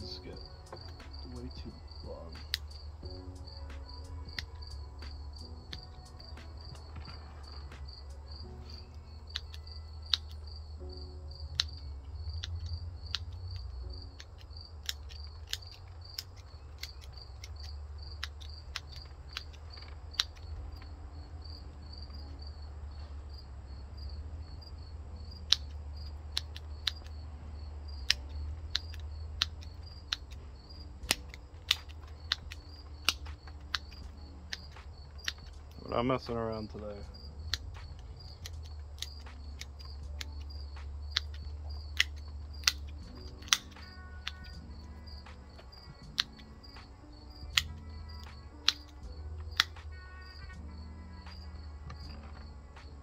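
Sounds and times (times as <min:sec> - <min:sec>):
cricket chirping: 0:00.0 - 0:53.0
scissors snipping clicks: 0:12.4 - 0:20.5, 0:28.0 - 0:30.4, 0:31.0 - 0:35.8, 0:37.4 - 0:44.6, 0:45.6 - 0:46.6, 0:47.5 - 0:49.9.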